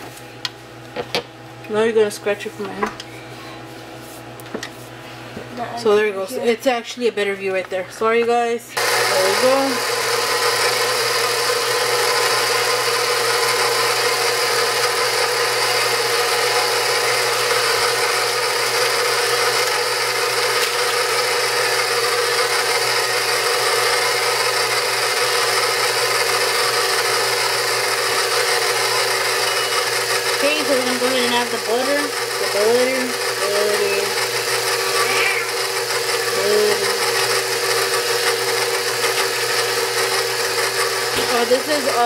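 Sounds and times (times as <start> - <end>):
stand mixer beating batter: 8.8 - 42.0.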